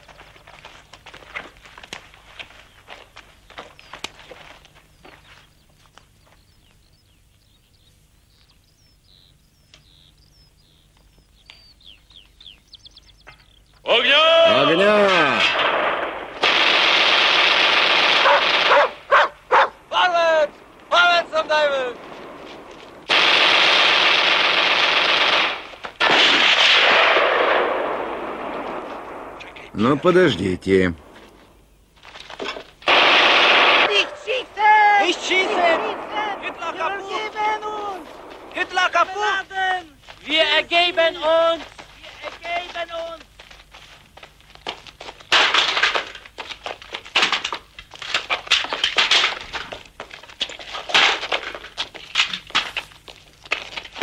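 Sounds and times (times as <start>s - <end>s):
footsteps and shuffling: 0.0s - 6.8s, 21.9s - 23.1s, 31.0s - 32.8s, 35.6s - 45.3s, 46.0s - 54.0s
automatic gunfire: 15.0s - 19.0s, 23.1s - 28.8s, 32.9s - 34.3s, 35.0s - 39.0s.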